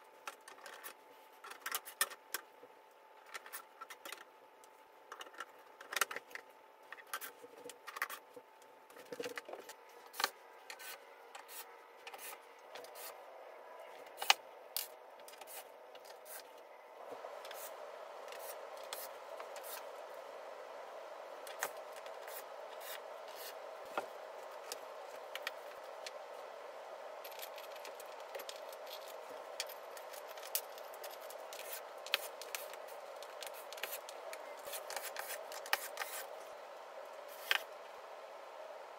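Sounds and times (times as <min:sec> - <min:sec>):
steady background hum: 0:00.0 - 0:38.9.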